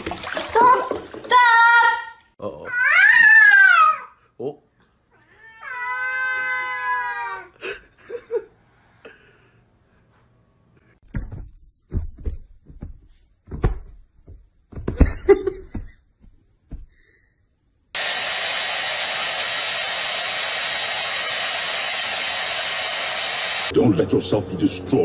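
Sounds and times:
thumps and scuffles: 11.0s - 17.1s
hair dryer blowing: 18.0s - 23.7s.

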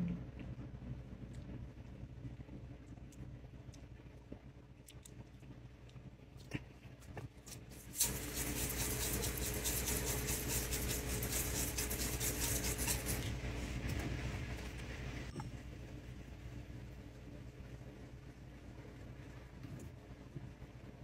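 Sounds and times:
spice grinder crackling: 7.5s - 13.4s.

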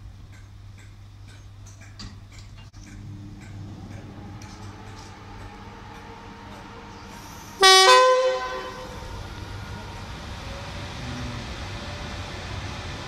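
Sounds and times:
steady low hum: 0.0s - 13.0s
electric locomotive two-tone horn: 3.2s - 11.4s.

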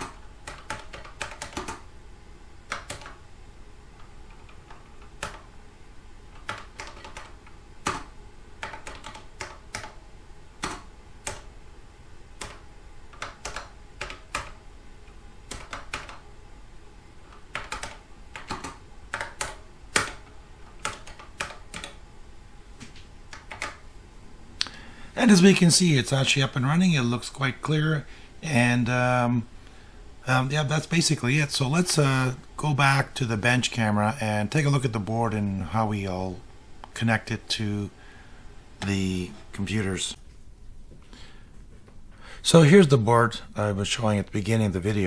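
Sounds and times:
computer keyboard typing: 0.0s - 1.9s, 2.7s - 3.2s, 4.0s - 5.5s, 6.3s - 10.0s, 10.6s - 11.5s, 12.4s - 14.6s, 15.5s - 16.2s, 17.3s - 22.0s, 23.3s - 23.8s.

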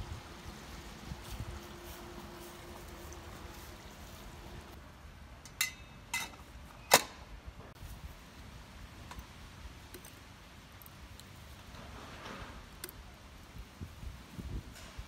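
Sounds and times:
metal lid clinking: 5.5s - 6.4s.

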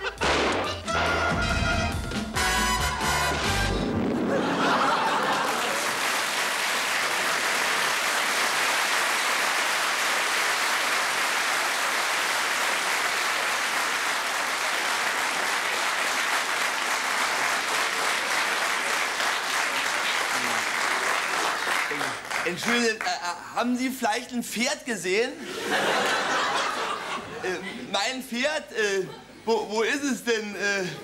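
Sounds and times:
studio audience applauding: 4.0s - 23.4s.

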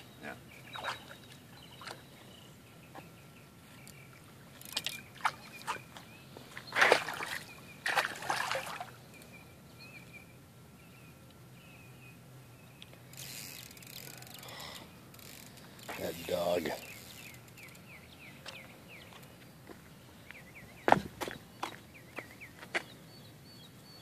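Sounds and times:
fish splashing at water surface: 6.7s - 9.0s.

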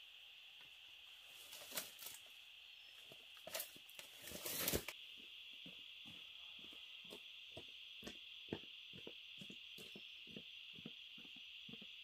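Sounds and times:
rustling and tearing: 1.4s - 2.3s, 3.4s - 4.9s
high-pitched insect drone: 2.0s - 12.0s.

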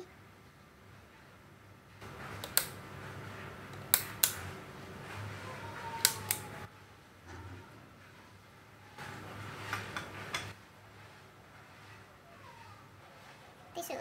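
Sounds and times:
sharp clicks at cooktop: 2.4s - 2.8s, 3.7s - 4.5s, 6.0s - 6.5s.

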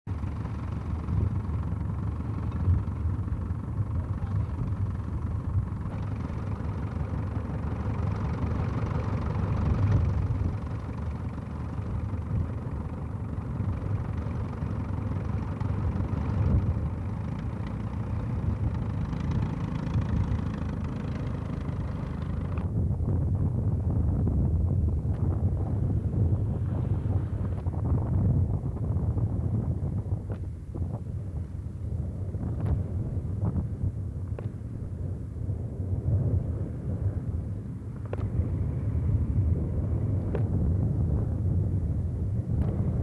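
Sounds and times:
tractor engine running: 0.1s - 43.0s.

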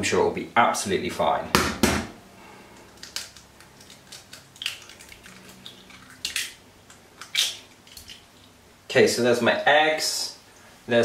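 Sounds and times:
eggs cracking against glass bowl: 2.7s - 8.6s.

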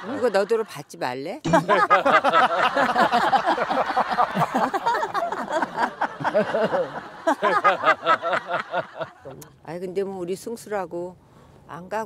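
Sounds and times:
people laughing and chattering: 1.5s - 9.4s.

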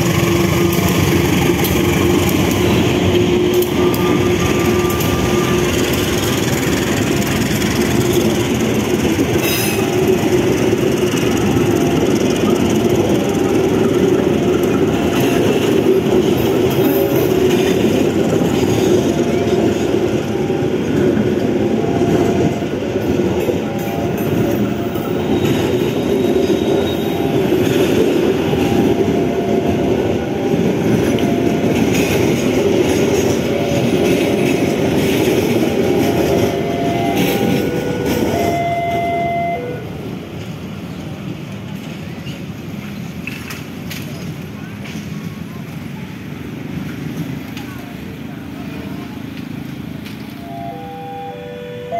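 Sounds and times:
wheels squealing: 0.0s - 39.9s
train wheels rumbling on rails: 0.0s - 51.9s.

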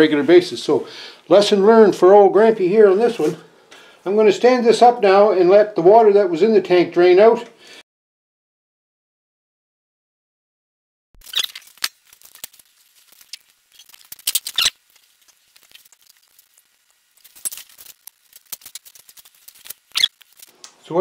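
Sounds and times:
water dripping and spattering: 11.2s - 20.6s.

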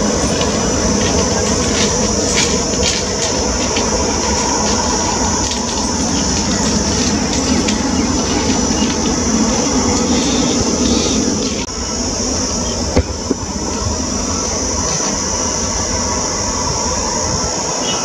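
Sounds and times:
jet engines running: 0.0s - 18.0s.

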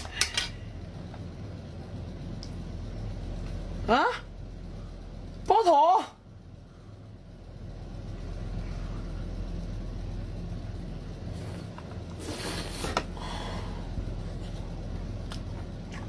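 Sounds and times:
steady low hum: 0.0s - 16.0s
wet bite and slurp: 15.2s - 16.0s.

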